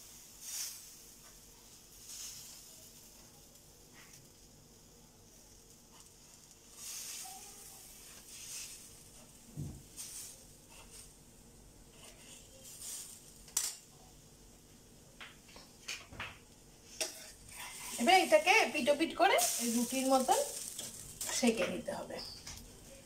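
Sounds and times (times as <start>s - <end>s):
metal ladle scraping griddle: 16.9s - 21.6s.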